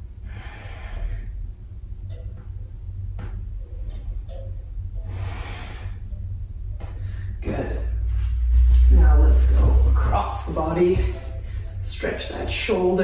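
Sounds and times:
low hum: 0:00.0 - 0:13.0
person breathing slowly: 0:00.2 - 0:01.5, 0:05.0 - 0:06.2.

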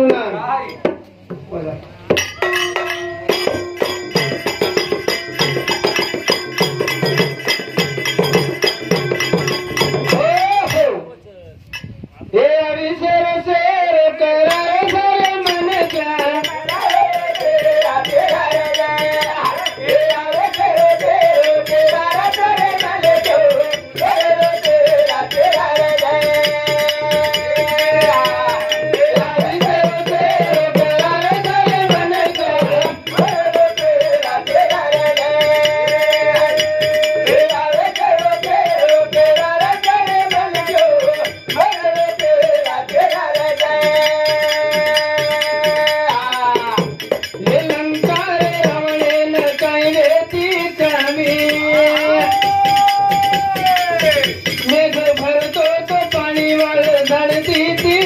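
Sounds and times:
men singing devotional song: 0:00.0 - 0:11.0, 0:12.3 - 0:58.0
hand percussion: 0:00.0 - 0:12.2, 0:14.1 - 0:58.0
jingling rattle: 0:14.5 - 0:58.0.

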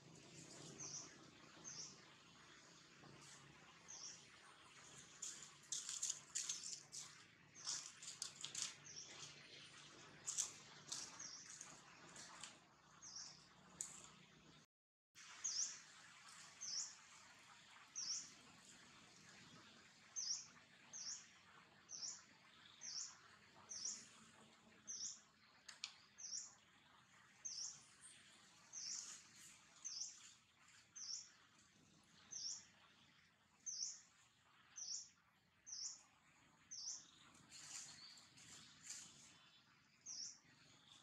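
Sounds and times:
faint outdoor hiss: 0:00.0 - 0:14.6, 0:15.2 - 0:41.0
bird chirping: 0:03.2 - 0:14.1, 0:24.8 - 0:41.0.

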